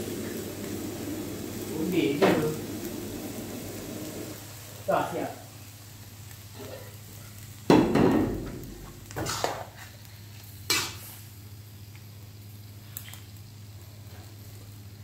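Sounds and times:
ladle and spatula scraping a wok: 9.2s - 9.9s, 10.6s - 11.3s.

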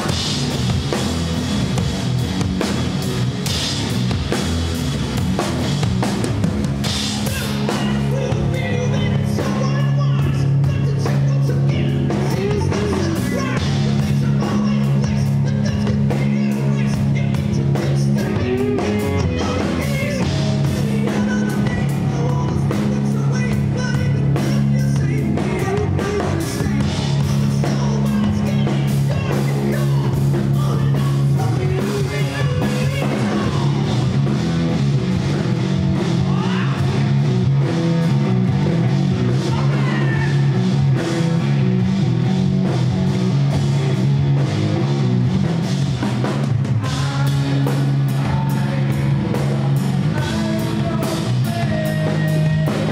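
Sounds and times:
drum kit with cymbals: 0.0s - 52.9s
guitar: 0.0s - 52.9s
low bass notes: 0.0s - 52.9s
man singing: 7.0s - 34.1s, 36.2s - 37.1s, 39.4s - 40.6s, 46.8s - 52.9s.

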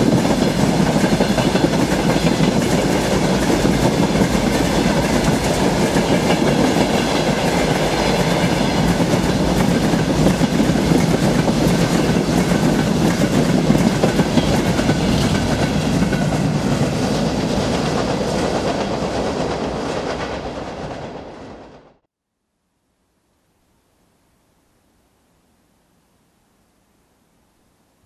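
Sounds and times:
train wheels clattering over rail joints: 0.0s - 21.1s.

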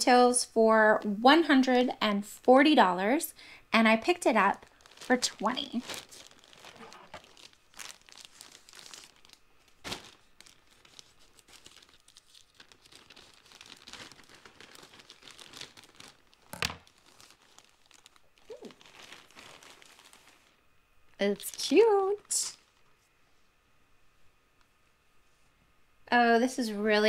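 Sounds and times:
plastic bag crinkling: 4.0s - 23.0s.

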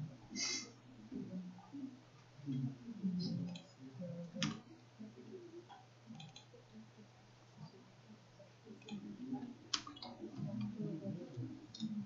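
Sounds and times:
low steady hum: 0.0s - 12.0s
keyboard and mouse clicks: 4.4s - 4.7s, 5.7s - 6.5s, 9.7s - 10.8s.

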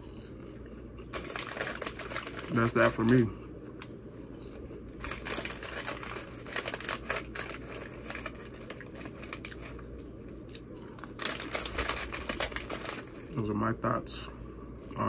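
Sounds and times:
paper wrapper crinkling: 1.1s - 3.3s, 5.0s - 10.0s, 11.0s - 13.4s.

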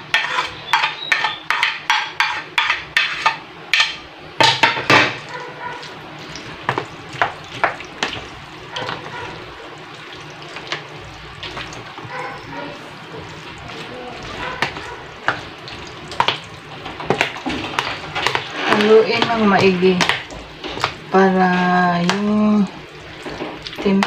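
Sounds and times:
spoon scraping plastic plate: 0.0s - 3.4s, 17.6s - 21.0s
salad stirred in plastic tub: 5.3s - 24.0s.

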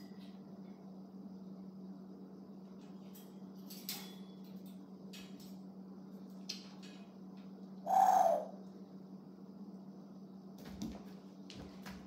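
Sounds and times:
steady low hum: 0.0s - 12.0s
short animal call: 7.9s - 8.6s.

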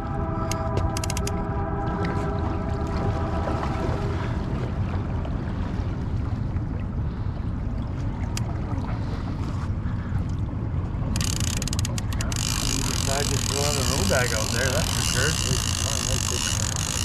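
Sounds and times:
wind rumbling on microphone: 0.0s - 17.0s.

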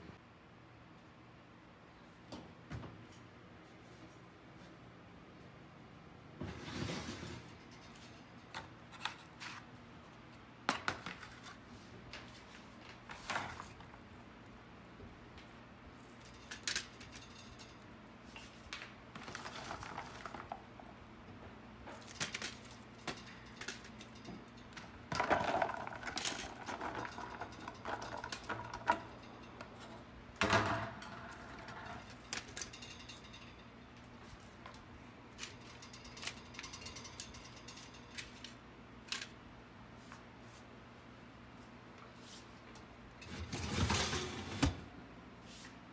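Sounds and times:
kitchen clicks and clatters: 7.1s - 9.6s, 16.1s - 20.8s, 21.8s - 33.9s, 35.3s - 39.4s.

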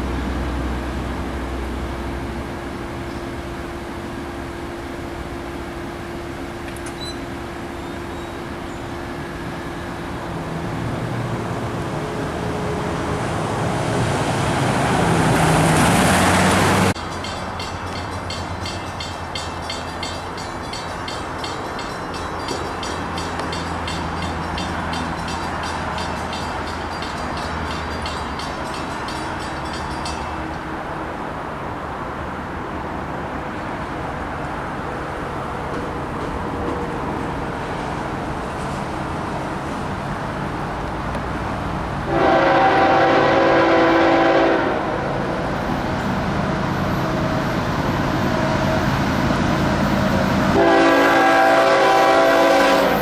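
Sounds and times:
train passing: 0.0s - 53.0s
train wheels clicking over rails: 15.0s - 30.7s, 35.3s - 39.9s.

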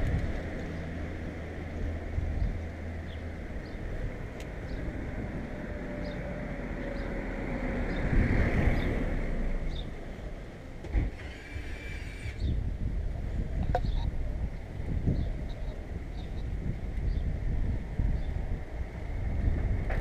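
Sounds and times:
wind buffeting microphone: 0.0s - 10.1s, 11.0s - 20.0s
car passing: 4.0s - 10.4s.

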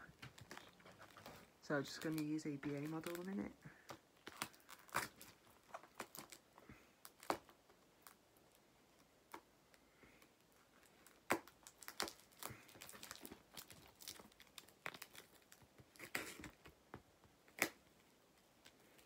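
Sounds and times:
hands handling plastic model: 0.1s - 6.4s.

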